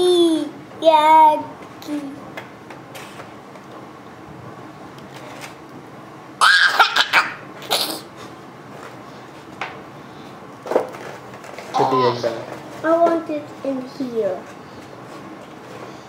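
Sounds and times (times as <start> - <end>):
toddler giggling: 6.4 - 8.1.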